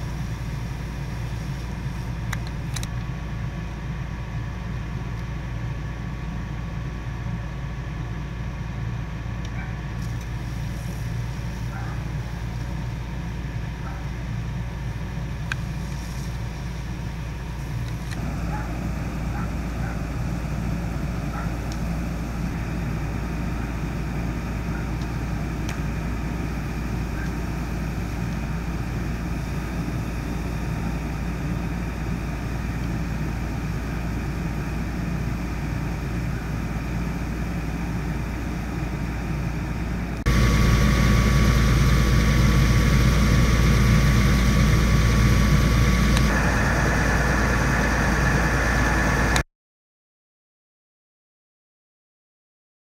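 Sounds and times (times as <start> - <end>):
fire engine rumbling: 0.0 - 49.4
thin steady whine: 0.0 - 49.4.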